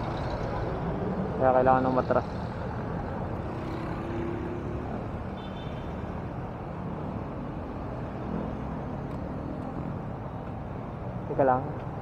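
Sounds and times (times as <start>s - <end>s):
street traffic rumble: 0.0s - 12.0s.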